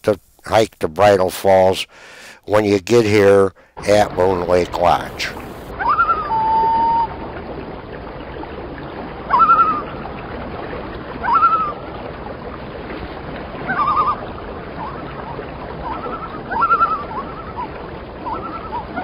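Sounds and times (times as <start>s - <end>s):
water rushing: 0.5s - 19.0s
loon calls: 4.9s - 7.2s, 9.3s - 10.0s, 11.2s - 11.9s, 13.6s - 19.0s.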